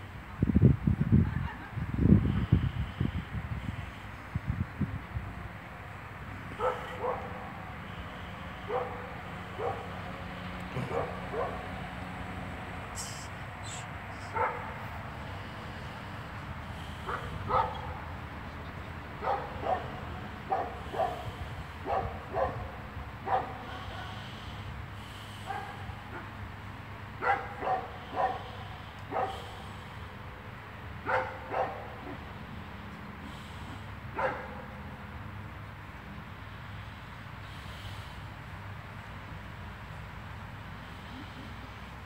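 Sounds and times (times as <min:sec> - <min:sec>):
dog barking: 0:06.6 - 0:07.7, 0:08.6 - 0:10.0, 0:10.7 - 0:11.7, 0:14.2 - 0:14.8, 0:17.0 - 0:18.0, 0:19.2 - 0:24.2, 0:25.4 - 0:26.4, 0:27.2 - 0:29.5, 0:31.0 - 0:32.2, 0:34.1 - 0:34.7.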